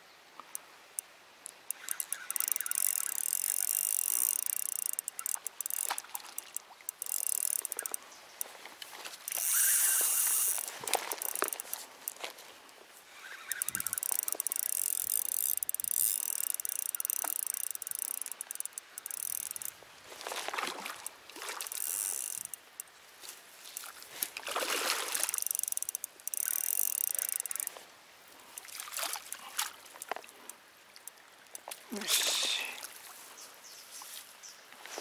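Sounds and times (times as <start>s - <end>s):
fishing reel clicking whir: 0.5s - 8.5s, 9.2s - 12.2s, 13.2s - 19.8s, 21.0s - 22.9s, 25.1s - 27.8s.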